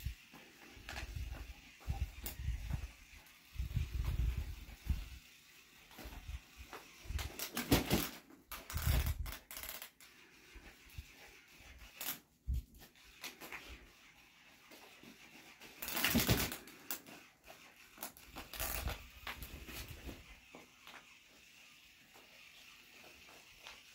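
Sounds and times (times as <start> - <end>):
plush toy rustling and thumping: 7.2 - 8.2, 15.9 - 16.5.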